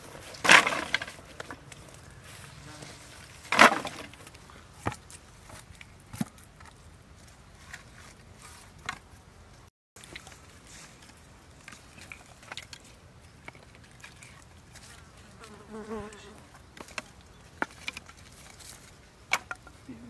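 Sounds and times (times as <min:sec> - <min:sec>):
wooden sticks clicking and knocking: 0:00.3 - 0:02.0, 0:10.0 - 0:14.9, 0:16.7 - 0:19.8.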